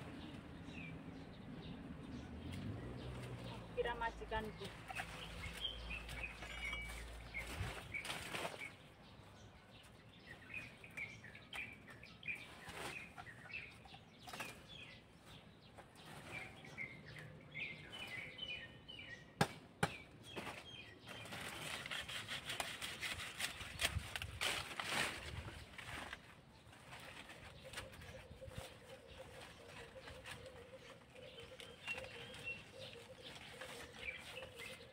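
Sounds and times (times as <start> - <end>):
small birds chirping: 0.0 - 34.9
dry leaves and sack rustling: 2.6 - 9.0, 12.1 - 13.4, 20.4 - 34.9.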